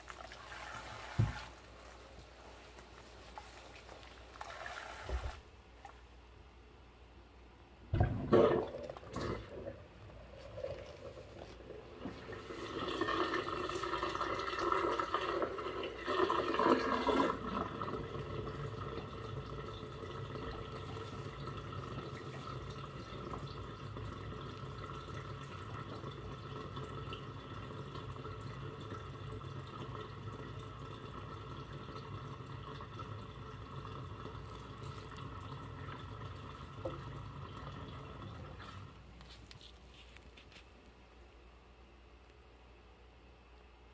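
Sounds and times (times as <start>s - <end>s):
water rushing down sink drain: 0.0s - 1.8s, 3.9s - 5.5s, 7.9s - 39.0s.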